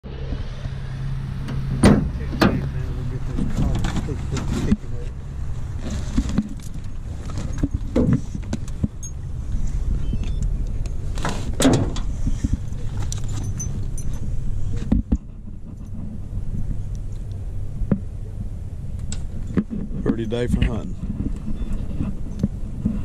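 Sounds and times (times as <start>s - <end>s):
steady low rumble: 0.0s - 23.0s
collar and gear clinking: 5.7s - 9.3s, 12.4s - 17.3s.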